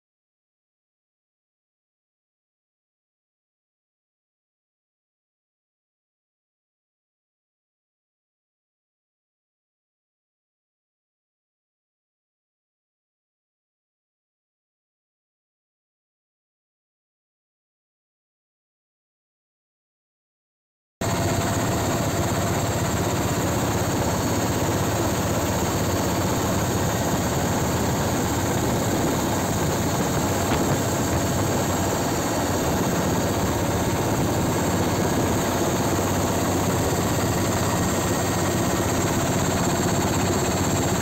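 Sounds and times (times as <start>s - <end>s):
aircraft engine drone in cabin: 21.0s - 41.0s.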